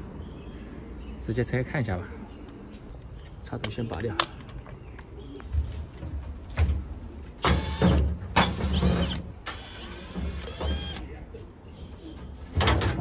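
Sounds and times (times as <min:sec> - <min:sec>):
washing machine thudding and scraping: 0:12.2 - 0:13.0.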